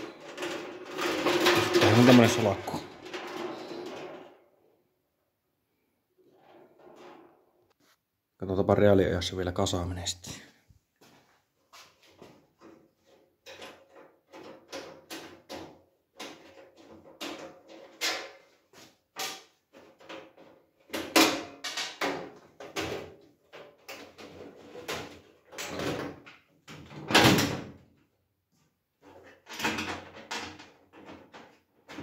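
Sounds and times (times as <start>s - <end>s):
sheet metal panels clanking: 0.0s - 4.3s.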